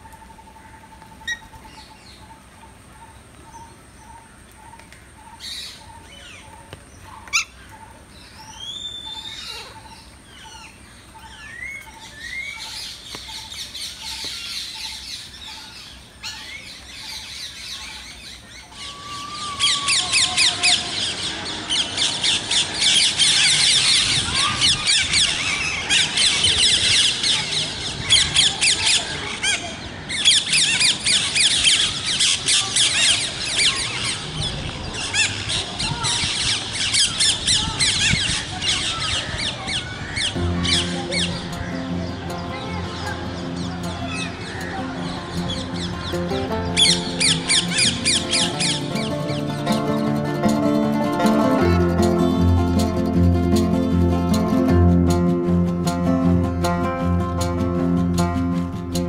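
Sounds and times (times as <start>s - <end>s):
parakeets screeching and chattering: 46.7s - 50.2s.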